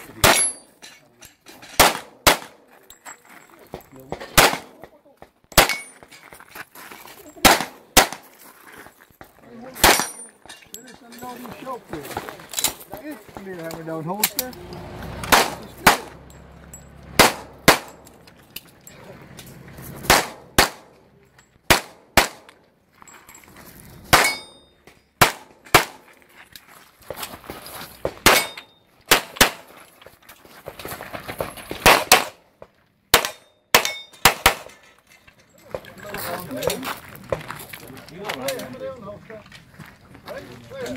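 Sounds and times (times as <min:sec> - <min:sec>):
steel targets clanging: 0:00.1 - 0:02.0, 0:05.5 - 0:06.3, 0:09.8 - 0:11.8, 0:23.2 - 0:25.2, 0:28.2 - 0:28.9, 0:33.2 - 0:36.8
handgun shots: 0:01.8 - 0:02.6, 0:04.4 - 0:04.8, 0:05.5 - 0:06.0, 0:07.4 - 0:08.2, 0:17.2 - 0:18.0, 0:20.1 - 0:20.9, 0:21.7 - 0:22.6, 0:28.2 - 0:29.7, 0:31.8 - 0:32.4.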